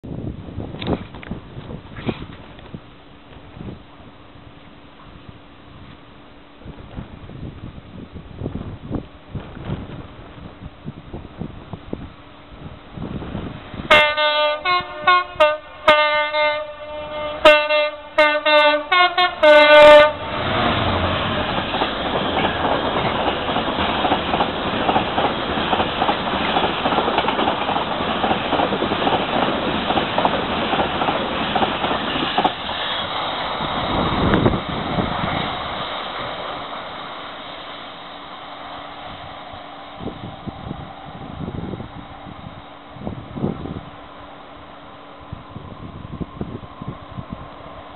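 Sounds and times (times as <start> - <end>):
locomotive horn short blasts: 13.9 - 20.5
train wheels clattering on track: 18.5 - 40.5.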